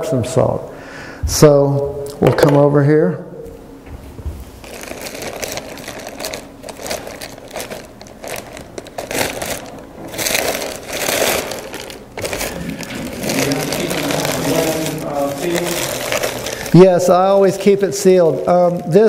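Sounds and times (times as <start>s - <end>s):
plastic bag crinkling: 4.6s - 19.0s.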